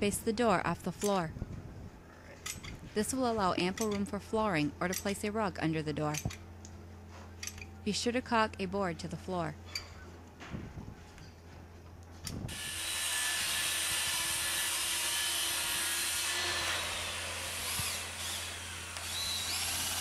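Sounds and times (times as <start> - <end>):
cordless drill driving screws: 17.5 - 20.0.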